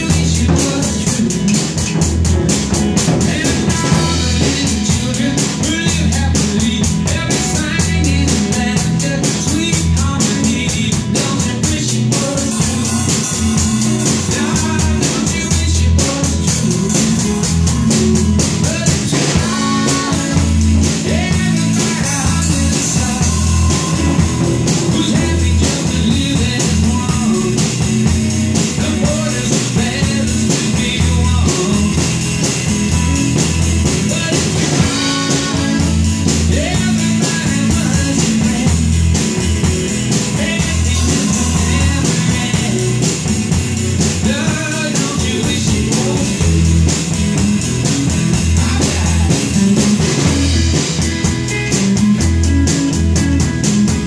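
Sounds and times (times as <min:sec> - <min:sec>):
rock song with singing and guitar: 0:00.0 - 0:54.0
child hitting drums and cymbals: 0:12.2 - 0:14.8.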